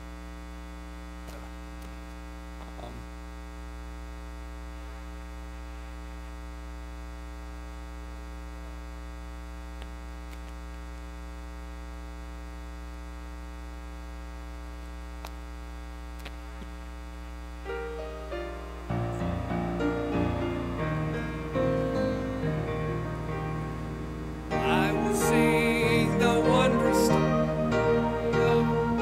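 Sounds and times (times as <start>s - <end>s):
electrical mains hum: 0.0s - 29.0s
faint clicks: 9.8s - 10.9s, 15.2s - 15.4s, 16.1s - 16.8s.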